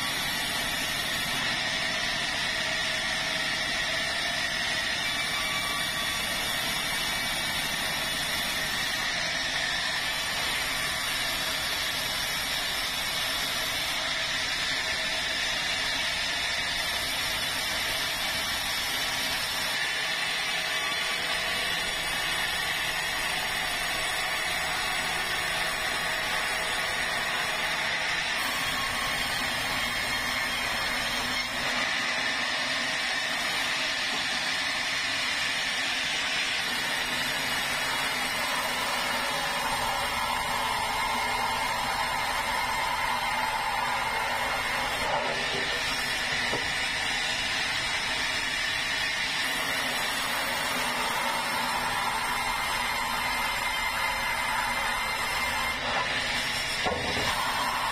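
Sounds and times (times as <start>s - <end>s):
sawmill saw whining: 0.0s - 57.9s.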